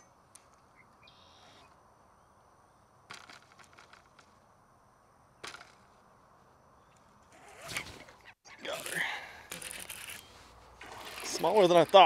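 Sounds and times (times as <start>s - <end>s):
fishing reel clicks: 8.8s - 10.3s, 10.9s - 12.0s.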